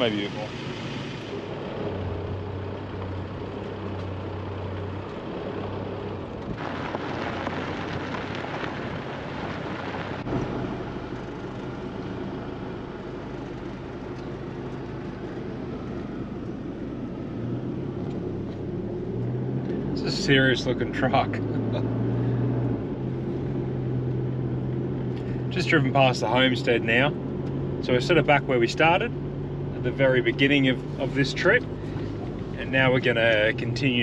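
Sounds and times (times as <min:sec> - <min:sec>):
vehicle engine drone: 0:00.0 - 0:34.0
tyres on gravel: 0:02.8 - 0:11.8.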